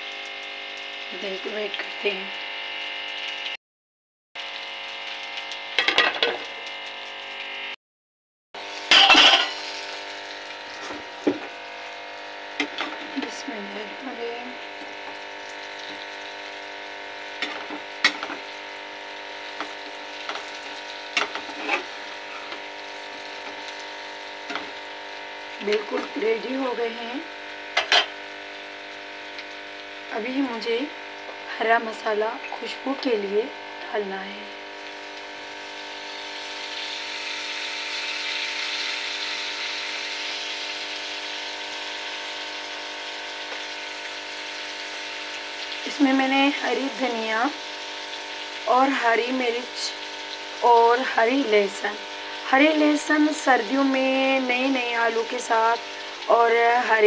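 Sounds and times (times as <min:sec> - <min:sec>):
potatoes sizzling in oil: 0:00.0 - 0:03.6, 0:04.4 - 0:07.7, 0:08.6 - 0:57.0
steady mechanical hum: 0:08.6 - 0:57.0
metal spatula scraping pan: 0:08.9 - 0:09.7, 0:21.2 - 0:22.6.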